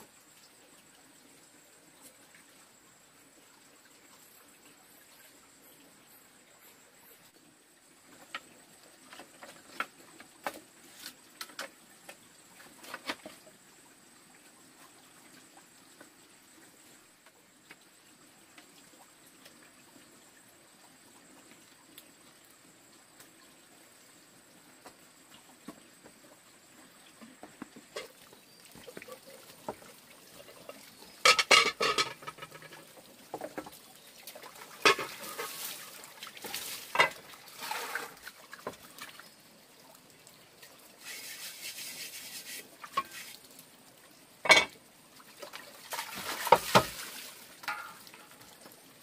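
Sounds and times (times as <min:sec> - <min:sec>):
water splashing and pouring: 0:27.9 - 0:49.0
pots and utensils clattering: 0:31.2 - 0:32.8, 0:34.8 - 0:35.8, 0:36.9 - 0:38.2, 0:44.4 - 0:44.8, 0:47.6 - 0:48.3.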